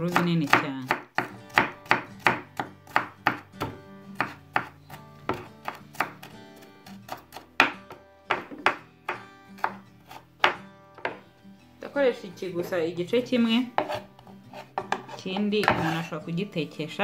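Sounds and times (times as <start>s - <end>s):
knife chopping on wooden board: 0.0s - 11.2s, 13.8s - 16.0s
background music: 0.0s - 17.0s.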